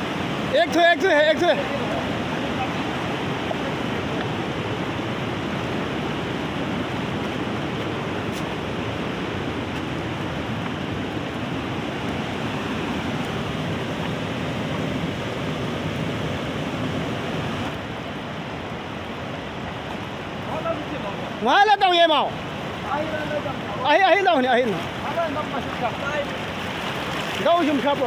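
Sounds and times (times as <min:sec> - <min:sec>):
river rushing over boulders: 0:00.0 - 0:28.0.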